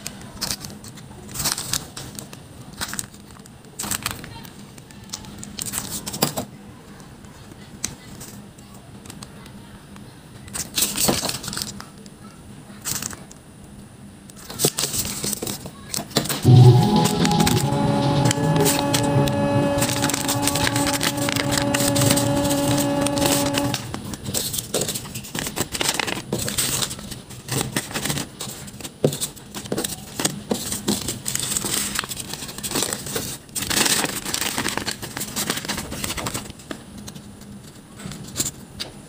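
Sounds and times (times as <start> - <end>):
background music: 16.4 - 23.9.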